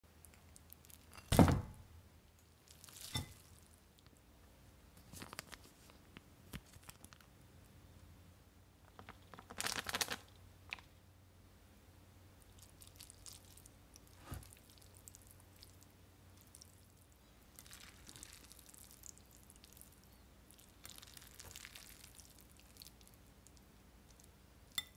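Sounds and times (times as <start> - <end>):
sharp thump: 1.3 - 1.8
packaging crinkling and tearing: 5.0 - 7.3, 8.9 - 10.3.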